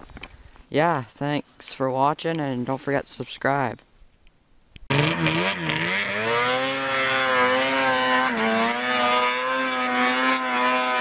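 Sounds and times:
engine running at high revs: 4.9 - 11.0.

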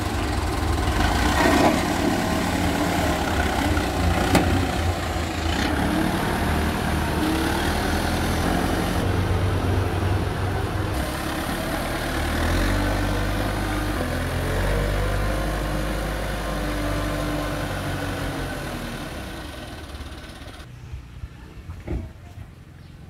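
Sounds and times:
backhoe diesel engine driving past: 0.0 - 20.7.

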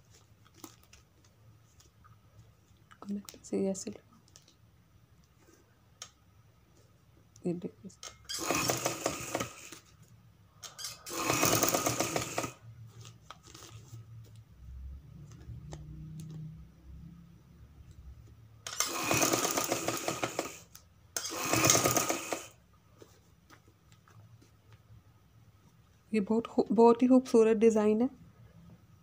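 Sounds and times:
sewing machine needle rattle: 8.1 - 9.7, 10.7 - 12.6, 18.7 - 22.6.

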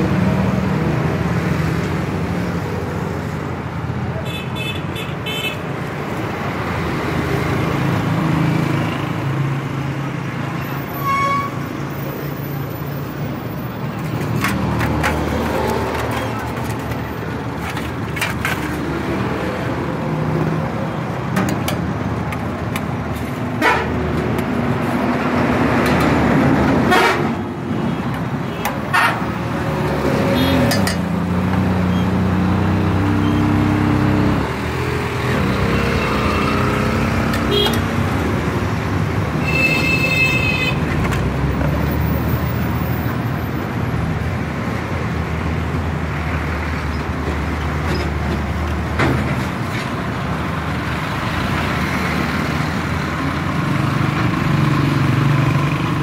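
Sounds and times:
road traffic: 0.0 - 56.0
vehicle horn tooting: 39.4 - 40.8.

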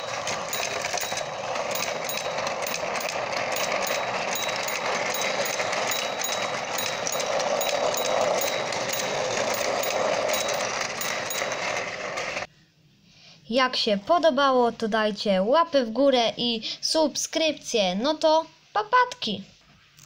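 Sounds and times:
toy train motors whirring: 0.0 - 12.5.

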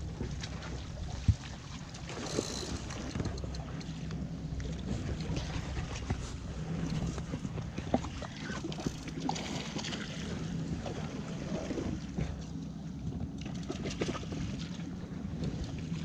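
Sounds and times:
wind rumbling on microphone: 0.0 - 16.0
faint clicks and knocks: 2.0 - 5.4.

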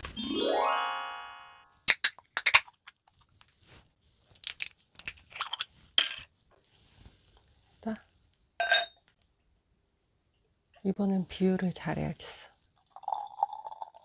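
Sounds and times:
bottle screw cap twisting open: 4.4 - 6.2.

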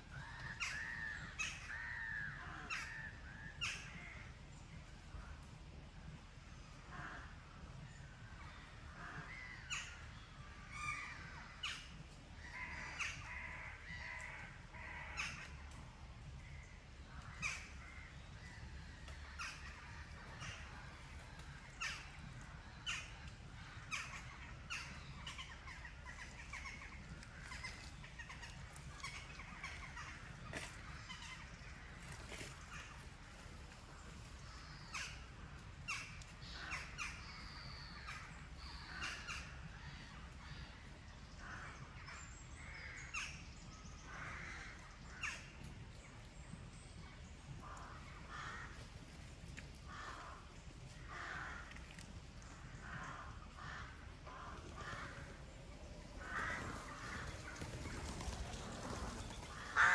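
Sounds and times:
crows cawing: 0.2 - 3.8, 47.6 - 48.8, 51.0 - 51.8, 52.8 - 55.4, 56.2 - 57.4, 59.6 - 59.9.

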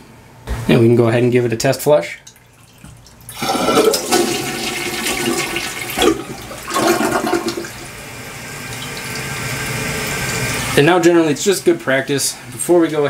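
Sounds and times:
toilet flushing: 2.4 - 11.3
toilet tank refilling hiss: 3.3 - 10.8.

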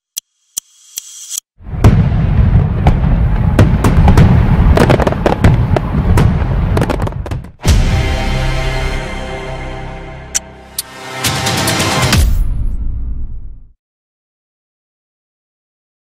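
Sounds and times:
fireworks crackling and banging: 1.7 - 7.6
electronic music chord: 7.7 - 12.2.

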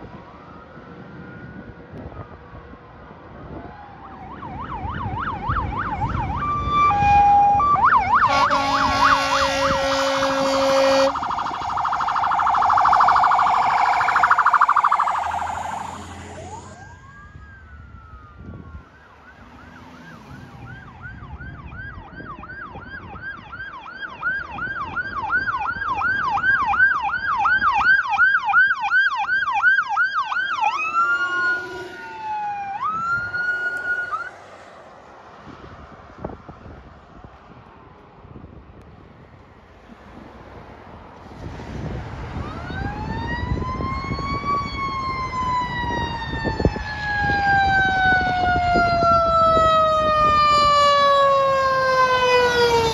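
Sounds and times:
fire engine siren: 0.0 - 37.0, 38.3 - 52.9
emergency vehicle siren: 0.0 - 52.9
fire engine rumbling: 4.7 - 35.6, 39.8 - 52.9
fire engine horn blast: 6.9 - 16.8, 30.7 - 34.4.

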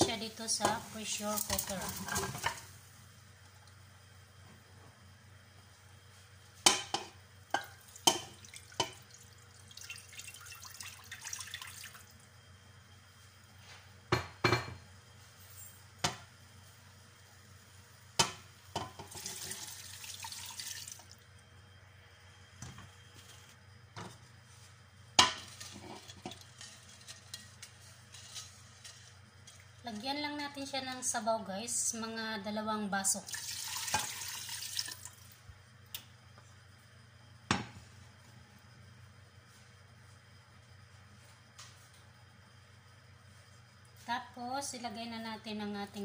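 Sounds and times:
cookware knocks and clinks: 14.1 - 14.8.

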